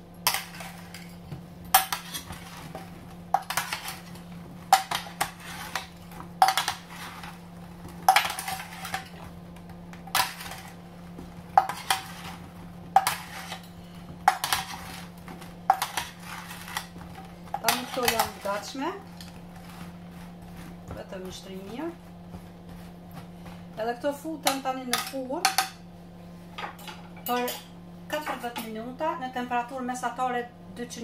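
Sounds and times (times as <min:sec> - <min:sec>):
steady low hum: 0:00.0 - 0:31.0
metal spoons scraping metal tray: 0:11.6 - 0:12.4, 0:13.0 - 0:15.1, 0:15.7 - 0:16.9, 0:17.6 - 0:19.8.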